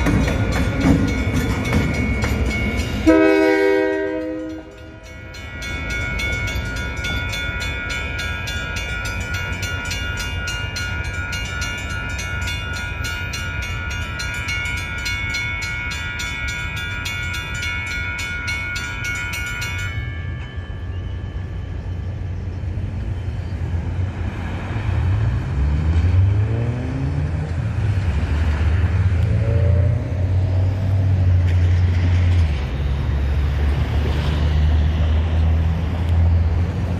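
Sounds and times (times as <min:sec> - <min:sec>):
crossing bell ringing: 0:00.0 - 0:25.3
locomotive air horn blast: 0:03.0 - 0:04.7.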